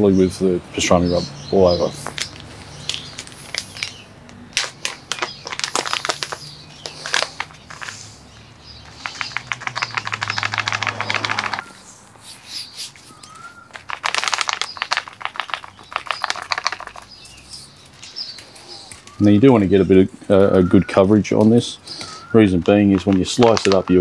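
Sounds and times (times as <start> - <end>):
shaker bottle rattling: 4.6 - 8.0, 8.9 - 11.7, 13.7 - 17.3.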